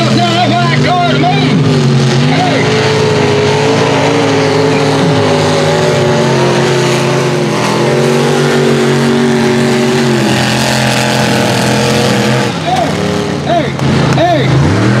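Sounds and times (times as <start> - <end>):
truck engine revving hard: 0.0 - 15.0.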